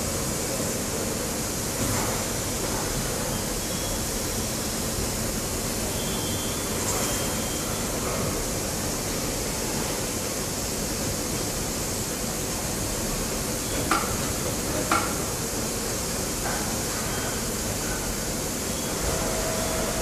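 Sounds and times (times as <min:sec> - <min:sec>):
steady machinery noise: 0:17.6 - 0:20.0.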